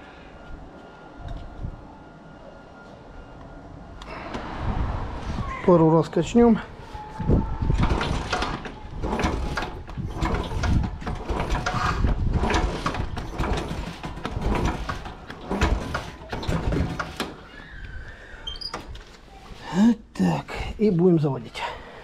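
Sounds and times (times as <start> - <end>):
engine turning over with clunks: 7.6 - 17.5.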